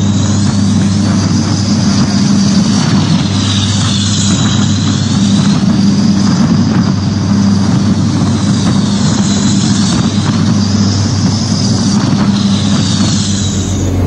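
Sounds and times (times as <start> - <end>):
high engine whine: 0.0 - 14.0
aircraft engines droning: 9.9 - 14.0
rushing air: 11.0 - 14.0.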